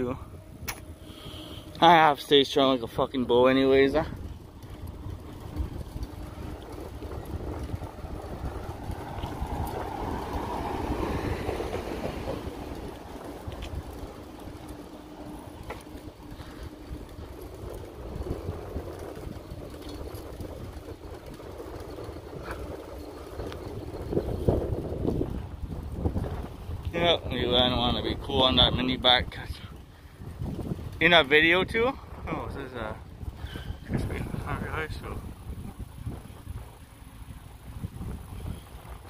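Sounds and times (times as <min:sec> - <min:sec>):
street noise rumble: 0:00.0 - 0:39.0
vehicle passing: 0:00.0 - 0:39.0.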